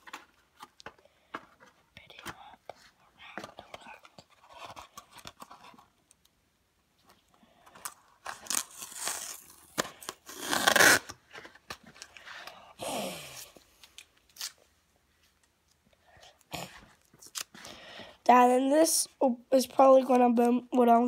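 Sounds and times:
rustling and scraping handling noise: 0.0s - 6.3s, 6.9s - 12.6s.

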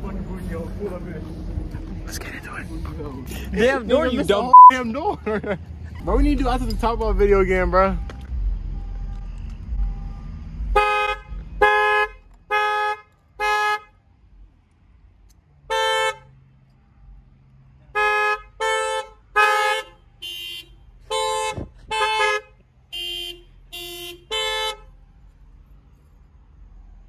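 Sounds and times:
car horn short toots: 4.5s - 4.8s.

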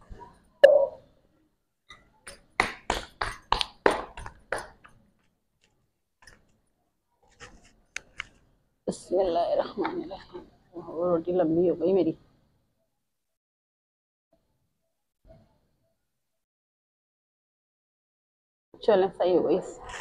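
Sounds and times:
dough slapped between palms: 2.5s - 4.9s.

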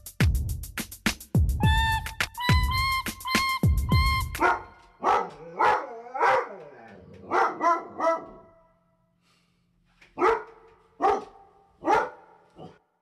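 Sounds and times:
dog barking: 4.4s - 6.6s, 7.2s - 8.7s, 10.2s - 12.9s.

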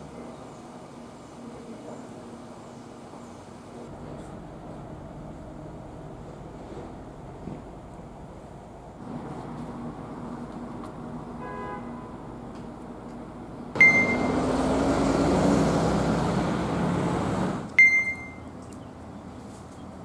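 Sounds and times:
vehicles passing: 0.0s - 20.0s
short high beep: 13.8s - 14.4s, 17.8s - 18.5s.

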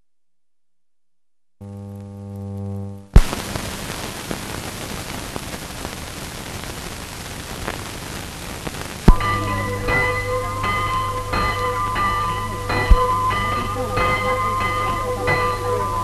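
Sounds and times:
steady low hum: 1.3s - 4.0s
film soundtrack hiss and crackle: 1.6s - 16.0s
sharp pop: 3.2s - 3.5s, 8.6s - 9.3s.

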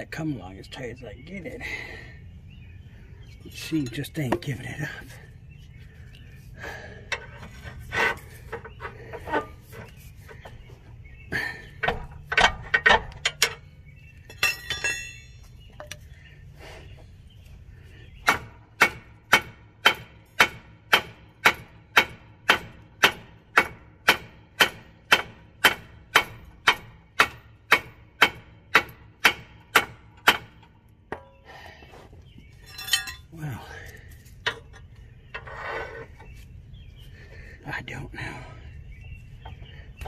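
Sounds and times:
ringing metal clank: 14.3s - 16.0s, 32.6s - 33.3s.

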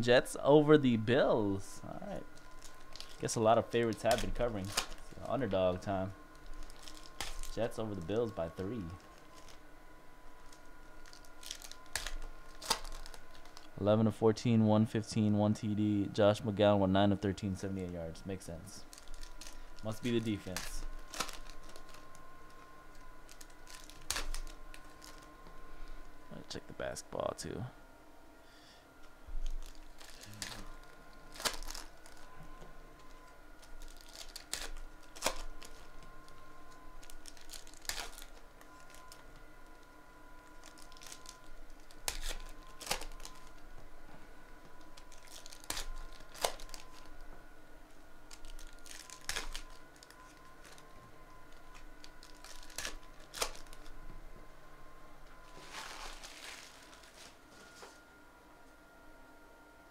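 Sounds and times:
cards rustling: 2.2s - 9.6s, 10.3s - 13.8s, 17.8s - 25.6s, 29.4s - 43.7s, 44.7s - 47.2s, 48.2s - 54.0s, 55.4s - 58.0s
crinkling: 2.2s - 9.7s, 10.3s - 13.8s, 18.6s - 26.2s, 29.0s - 47.3s, 47.9s - 54.0s, 55.2s - 58.0s.

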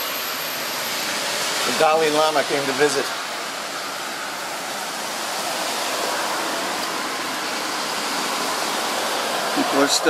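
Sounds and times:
storm wind with rain: 0.0s - 10.0s.

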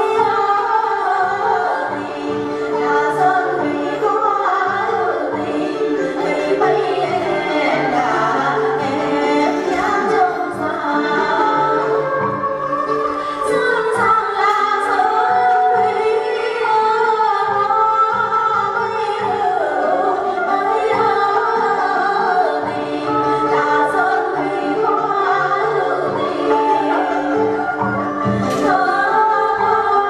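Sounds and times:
traditional instrumental ensemble: 0.0s - 30.0s
women singing folk song: 0.0s - 30.0s
hand percussion clacks: 28.3s - 28.8s.

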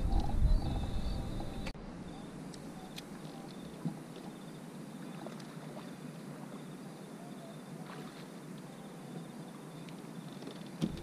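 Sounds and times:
small waves lapping against hull: 2.8s - 11.0s.

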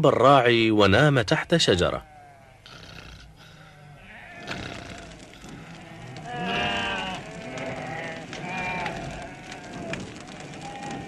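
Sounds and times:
sheep bleating: 1.8s - 11.0s.

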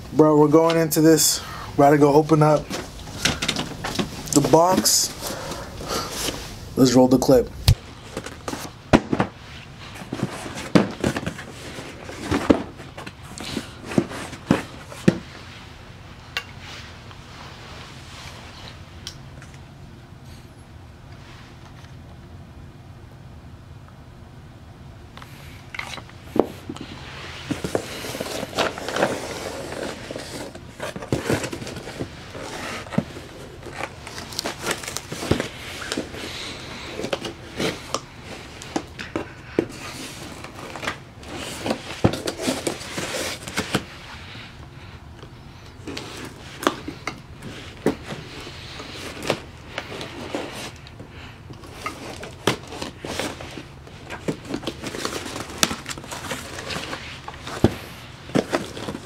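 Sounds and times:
cardboard clicks and crackles: 27.5s - 43.9s, 48.8s - 59.0s.

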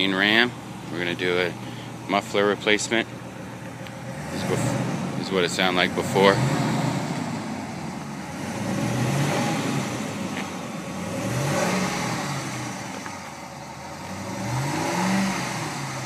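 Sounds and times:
truck engine revving: 3.6s - 16.0s.

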